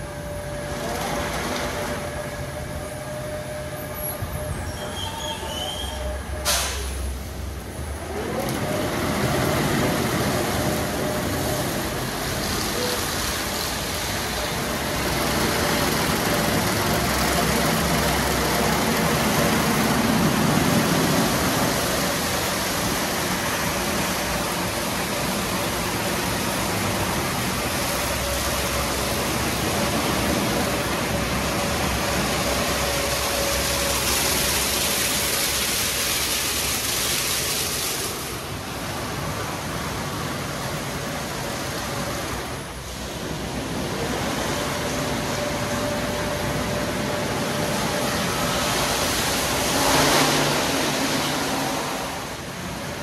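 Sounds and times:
car wash spraying water: 0.0s - 53.0s.

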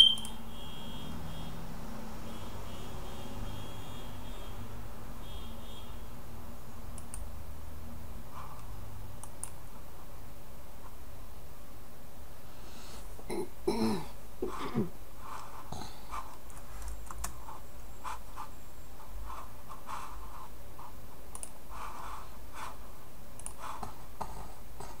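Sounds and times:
low electrical hum: 0.0s - 25.0s
computer keyboard and mouse clicks: 6.9s - 7.3s, 8.6s - 9.6s, 16.4s - 17.4s, 21.3s - 21.6s, 23.4s - 23.9s.

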